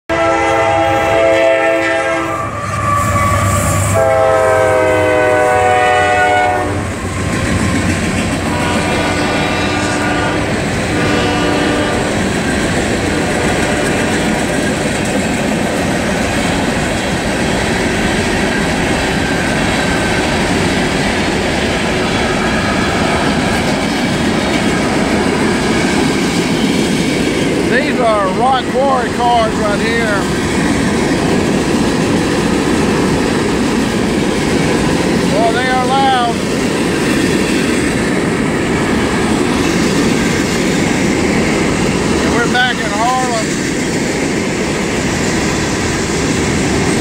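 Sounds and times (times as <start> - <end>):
locomotive air horn blasts: 0.1 - 7.0, 8.4 - 12.2, 13.1 - 14.4
freight cars rumbling and clacking: 6.8 - 9.7, 10.4 - 47.0.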